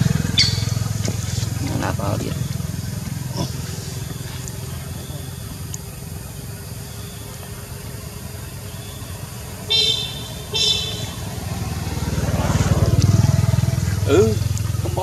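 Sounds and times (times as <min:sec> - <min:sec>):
vehicle engine rumbling: 0:00.0 - 0:15.0
horn toots: 0:09.6 - 0:11.8.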